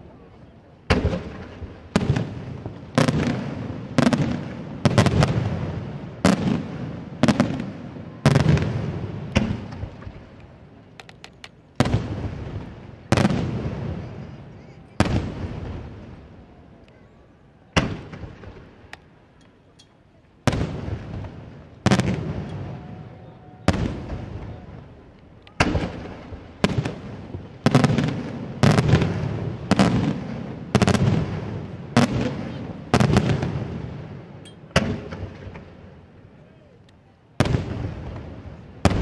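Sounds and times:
firework shells bursting: 0:11.0 - 0:12.0.

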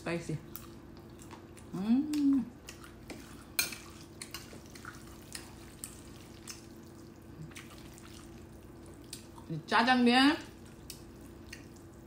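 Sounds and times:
faint steady hum: 0:00.0 - 0:12.0
chopsticks mixing wet noodles: 0:02.1 - 0:09.5.

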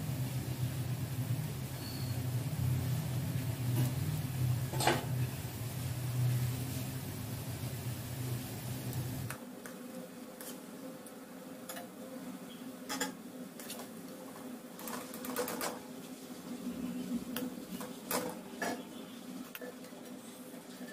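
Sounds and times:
hot oil crackling and popping: 0:00.0 - 0:09.4.

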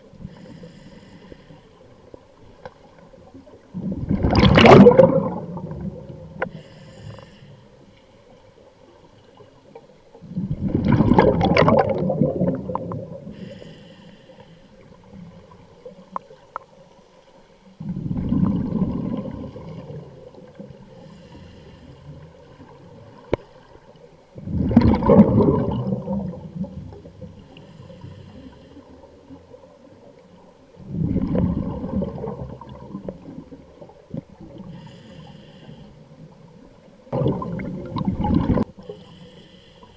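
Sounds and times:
diver breathing through regulator: 0:00.2 - 0:01.9, 0:06.3 - 0:07.9, 0:13.2 - 0:14.9, 0:20.9 - 0:22.5, 0:27.4 - 0:29.2, 0:34.5 - 0:36.2, 0:38.6 - 0:39.9
rushing exhaled bubbles: 0:03.7 - 0:06.3, 0:10.2 - 0:13.3, 0:17.8 - 0:20.6, 0:24.4 - 0:27.0, 0:30.8 - 0:34.6, 0:37.1 - 0:38.8.

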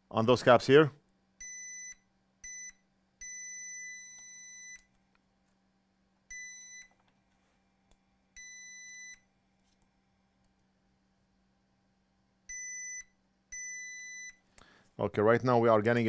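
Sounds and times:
multimeter beeping: 0:01.4 - 0:04.9, 0:06.3 - 0:07.0, 0:08.4 - 0:09.3, 0:12.5 - 0:14.4.

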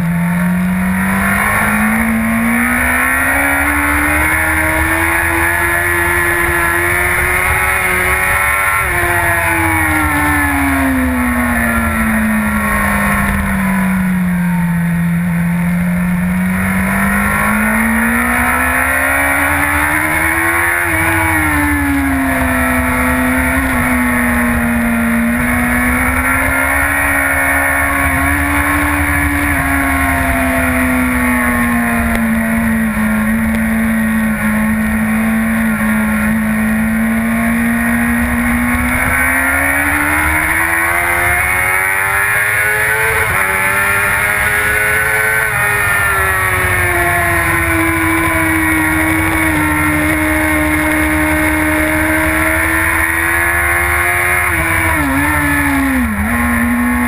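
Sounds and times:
motorcycle engine revving: 0:00.0 - 0:57.0.

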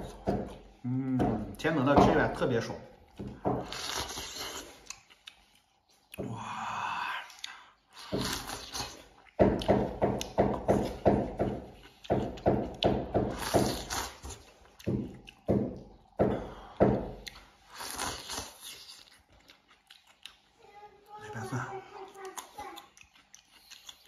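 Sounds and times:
quick chewing sounds: 0:03.0 - 0:06.2, 0:11.6 - 0:16.2, 0:17.0 - 0:20.6, 0:21.3 - 0:24.0.

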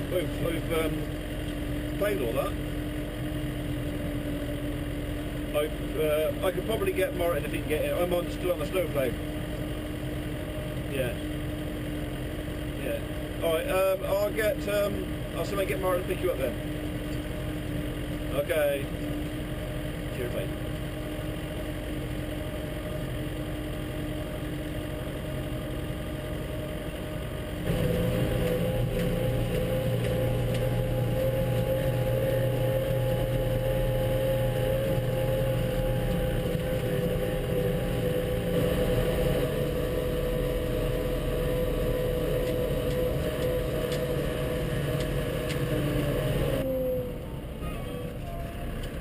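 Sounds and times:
steady mechanical whine: 0:00.0 - 0:49.0
tractor diesel engine running: 0:00.0 - 0:49.0.

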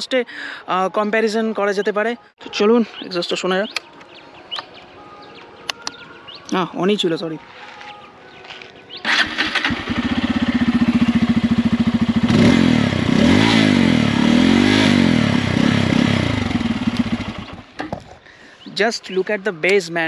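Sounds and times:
motorcycle engine revving: 0:09.0 - 0:17.9
motorcycle engine starting: 0:09.0 - 0:18.1.

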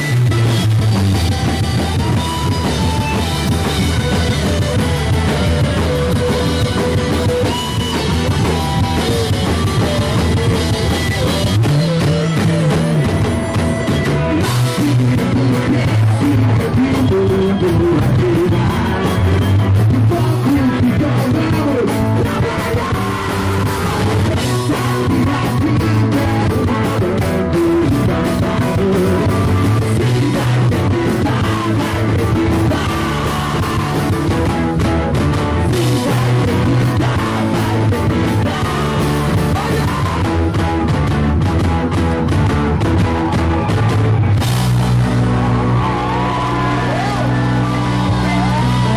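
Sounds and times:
drum kit: 0:00.0 - 0:48.9
electric guitars: 0:00.0 - 0:48.9
rock band playing live: 0:00.0 - 0:48.9
person singing: 0:01.4 - 0:34.5, 0:35.6 - 0:40.7.

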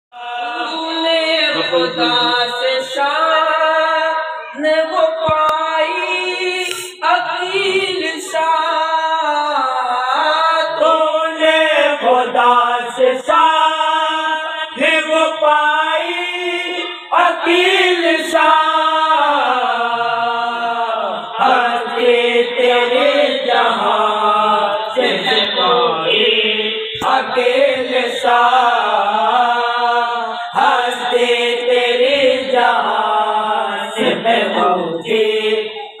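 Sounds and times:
men chanting a devotional song: 0:00.1 - 0:36.0.

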